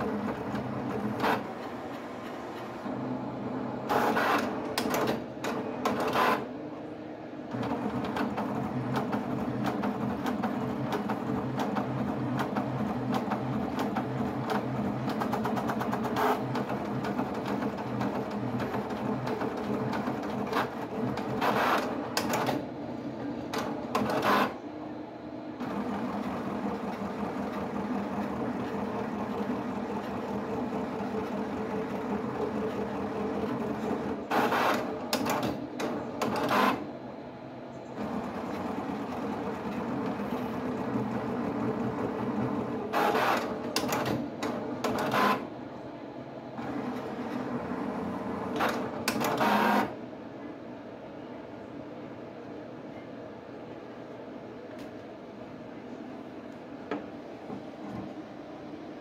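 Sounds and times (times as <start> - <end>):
pen plotter motors whirring: 0.0 - 6.6, 7.4 - 24.7, 25.5 - 36.9, 37.9 - 45.5, 46.6 - 50.0.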